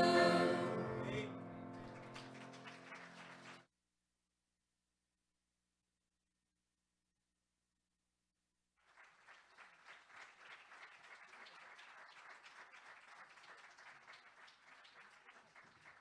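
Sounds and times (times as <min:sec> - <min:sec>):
audience clapping: 0:01.7 - 0:03.7, 0:08.8 - 0:16.0.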